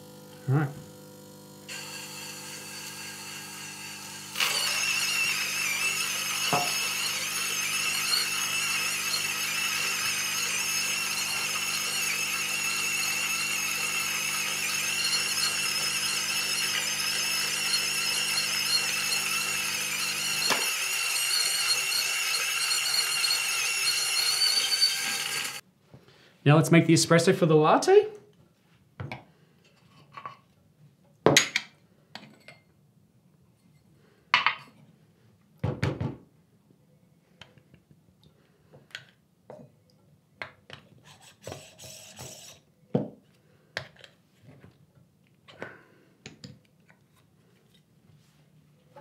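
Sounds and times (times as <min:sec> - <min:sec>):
espresso machine pump buzzing: 0:00.0 - 0:25.6.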